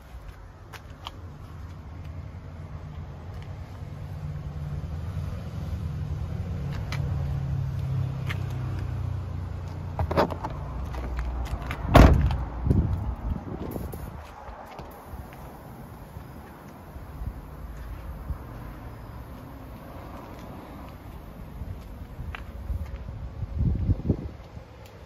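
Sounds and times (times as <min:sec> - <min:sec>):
van door shutting: 0:11.9 - 0:12.4.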